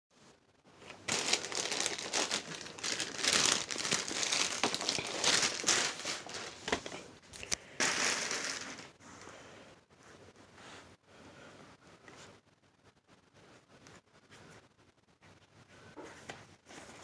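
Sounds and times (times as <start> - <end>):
plastic bag crinkling and rustling: 0.8 - 9.0.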